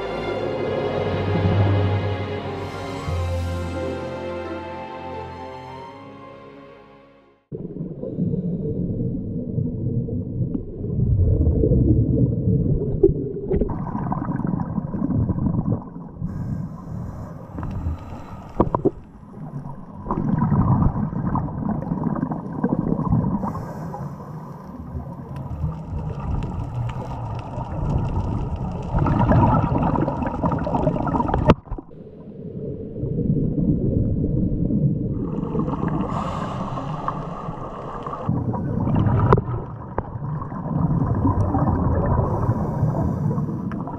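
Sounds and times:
regulator bubbles gurgling underwater: 7.5s - 43.9s
underwater hiss: 16.2s - 19.0s, 23.4s - 24.9s, 35.2s - 38.3s, 42.1s - 43.9s.

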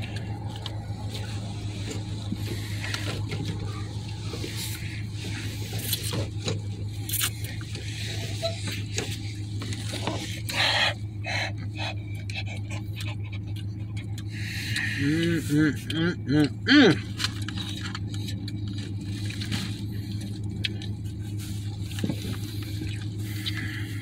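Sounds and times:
steady low hum: 0.0s - 24.0s
chewing and mouth noises: 11.5s - 24.0s.

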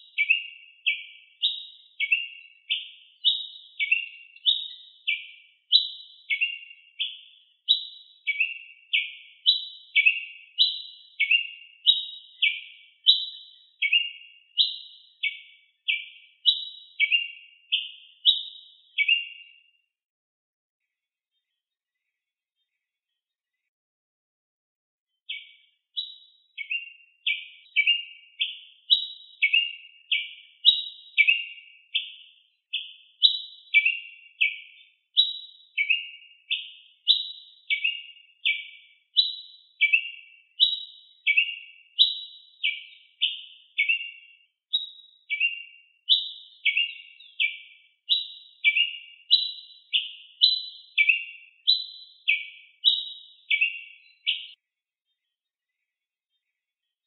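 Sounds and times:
bird chirping: 0.0s - 19.8s, 25.2s - 57.0s.

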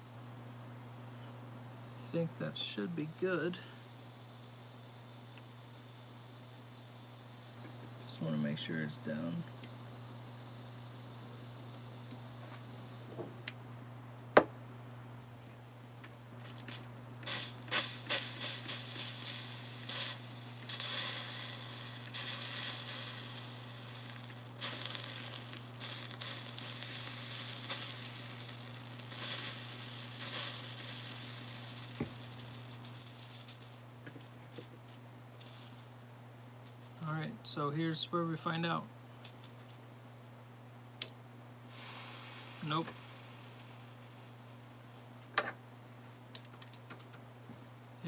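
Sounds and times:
spray bottle spritzing water: 16.5s - 33.8s.

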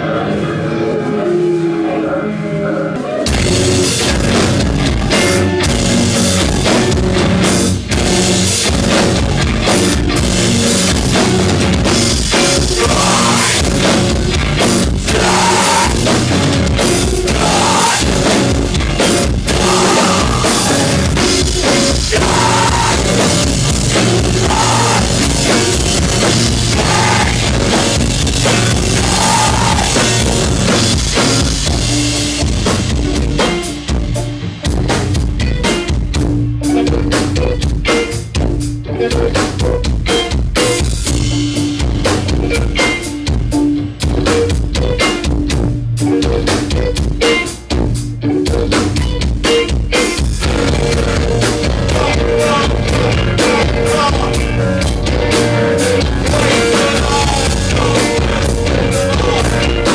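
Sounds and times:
keyboard drone: 0.0s - 35.7s, 50.3s - 59.9s
drum kit played hard: 3.2s - 59.9s.

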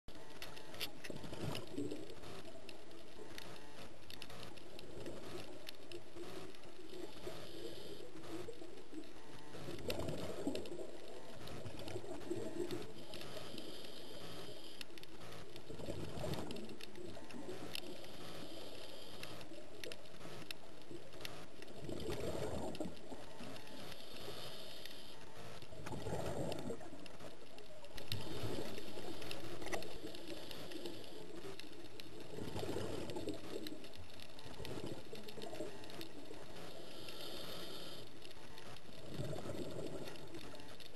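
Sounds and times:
regulator inhale hiss: 7.1s - 8.4s, 13.0s - 14.9s, 17.8s - 19.6s, 23.3s - 25.6s, 36.5s - 38.8s
exhaled bubbles underwater: 21.7s - 23.2s, 25.8s - 27.0s, 39.0s - 40.4s.

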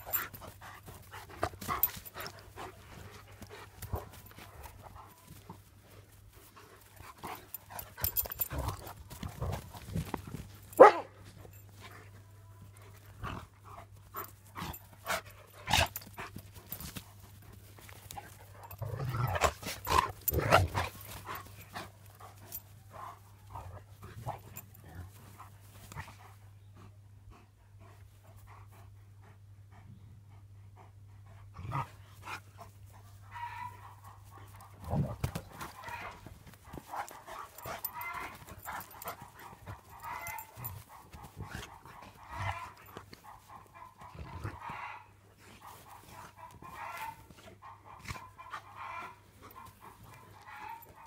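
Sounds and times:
dogs scuffling: 0.0s - 12.0s, 14.0s - 26.0s, 33.4s - 44.1s
dogs panting: 0.0s - 51.0s.

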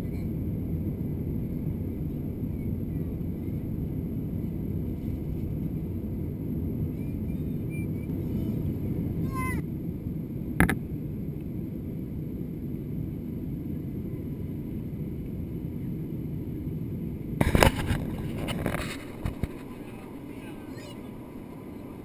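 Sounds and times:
airliner cabin roar: 0.0s - 22.0s
loud rumble with knocks: 10.6s - 10.8s.

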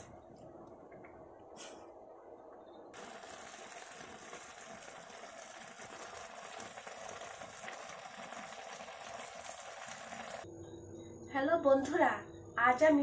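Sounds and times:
soup simmering with bubbling hiss: 2.9s - 10.5s.

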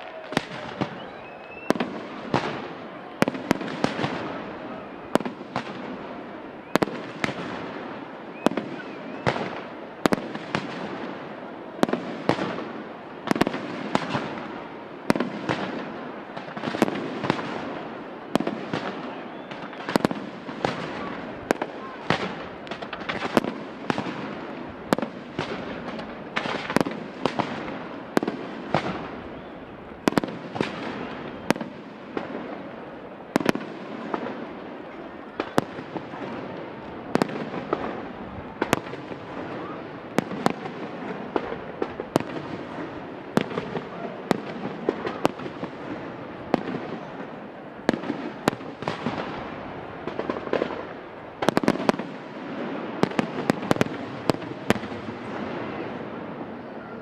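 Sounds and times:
fireworks bangs: 0.0s - 57.0s.

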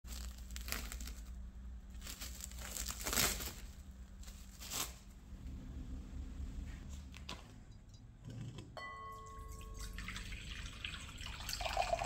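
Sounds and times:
plastic cling film crinkling: 0.0s - 5.2s.

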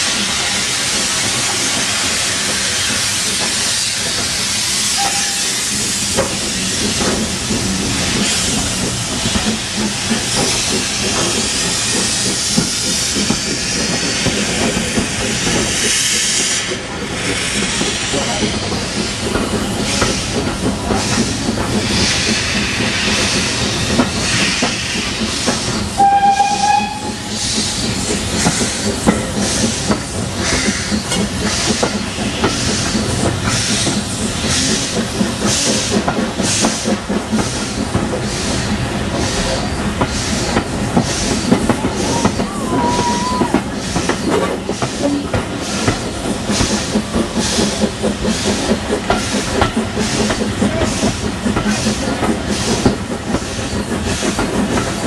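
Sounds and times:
steam locomotive chuffing: 0.0s - 55.0s
steam whistle: 4.9s - 5.7s, 26.0s - 27.4s.

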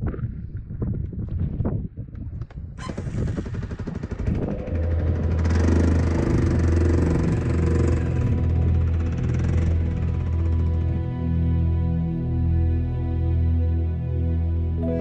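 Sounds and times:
quad bike engine running: 2.8s - 11.1s.

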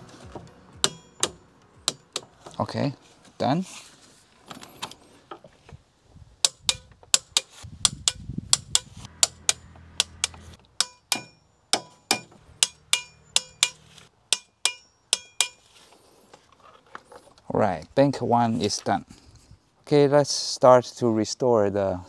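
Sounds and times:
torque wrench clicking: 6.4s - 11.2s.

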